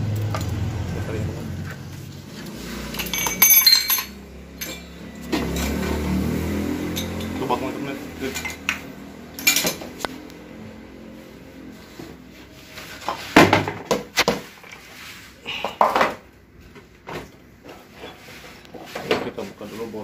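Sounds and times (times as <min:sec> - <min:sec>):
metal parts clunking: 0:02.9 - 0:05.8, 0:09.4 - 0:09.9.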